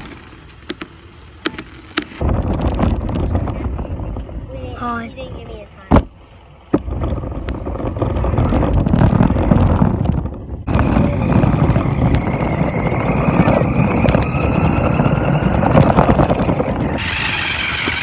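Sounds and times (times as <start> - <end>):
rattling rumble of toy car wheels: 0.0 - 18.0
motor whine: 10.1 - 18.0.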